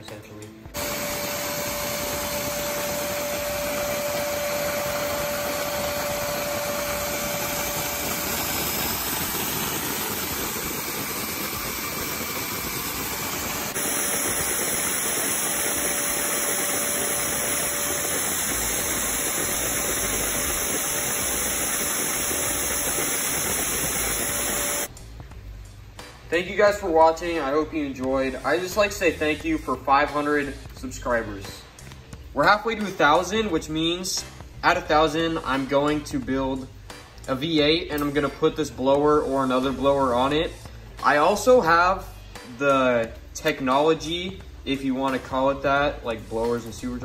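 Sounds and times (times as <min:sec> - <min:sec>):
vacuum cleaner running: 0:00.7 - 0:24.9.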